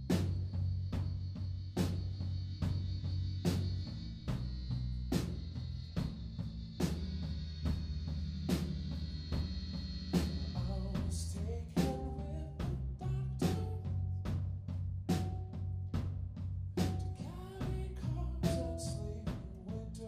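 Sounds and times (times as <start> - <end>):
drum kit steady beat: 0.0 - 20.0
electric bass: 0.0 - 20.0
high held tone: 9.4 - 14.4.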